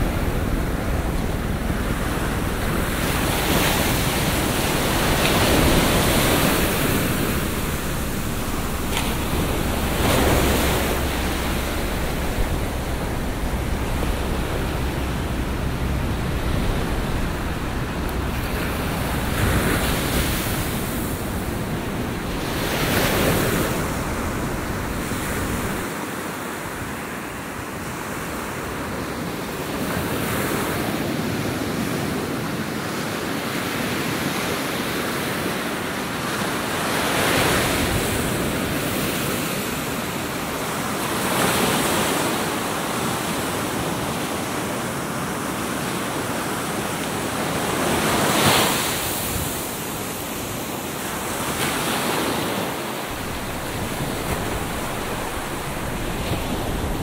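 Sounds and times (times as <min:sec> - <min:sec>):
waves breaking on a beach: 0:00.0 - 0:57.0.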